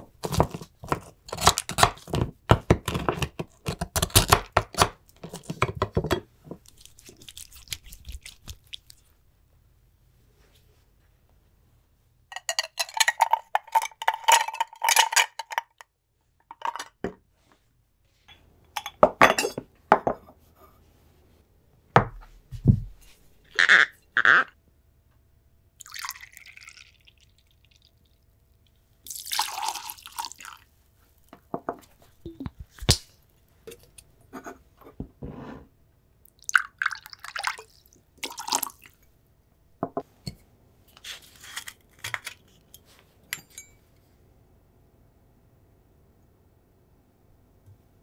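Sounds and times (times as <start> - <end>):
liquid pouring and splashing: 6.7 - 9.1, 25.8 - 27.9, 29.1 - 30.6, 36.4 - 39.0
metal clinks of jigger and tins: 43.3 - 43.8.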